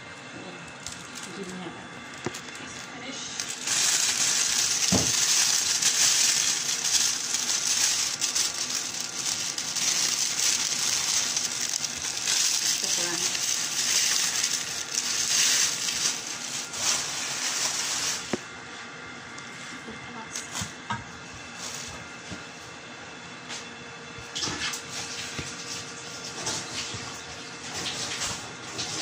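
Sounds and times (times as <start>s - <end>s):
plastic bag crinkling: 0.6s - 18.4s.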